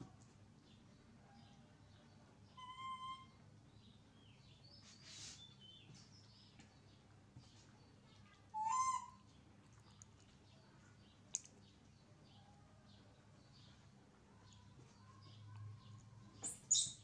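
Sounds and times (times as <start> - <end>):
faint squeaks: 2.5 - 3.4, 14.3 - 17.0
baby monkey coo calls: 2.6 - 3.4, 8.6 - 9.2.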